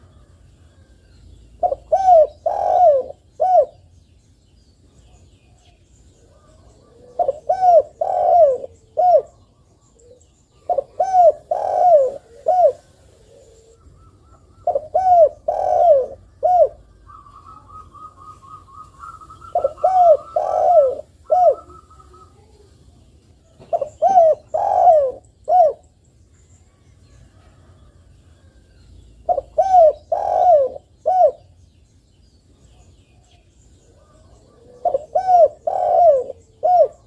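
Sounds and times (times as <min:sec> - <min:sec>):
dove cooing: 0:01.6 - 0:03.8, 0:06.2 - 0:22.8, 0:23.4 - 0:25.9, 0:29.2 - 0:31.6, 0:33.9 - 0:37.0.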